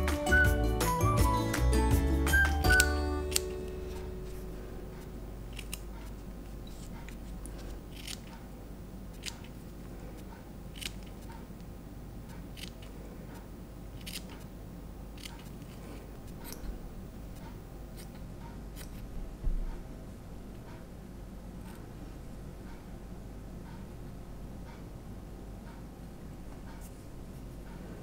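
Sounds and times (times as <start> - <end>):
low steady hum: 0.0 - 28.0
scissors snipping fur: 2.6 - 4.4, 5.5 - 8.5, 9.1 - 9.6, 10.2 - 11.5, 12.3 - 12.9, 14.0 - 14.4, 15.2 - 16.7, 17.4 - 18.2, 18.8 - 19.0.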